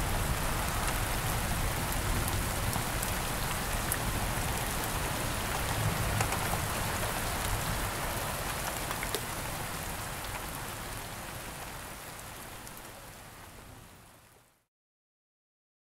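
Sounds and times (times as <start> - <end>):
steady rain falling: 0.0 - 14.7
sharp clicks of raindrops: 0.2 - 11.8.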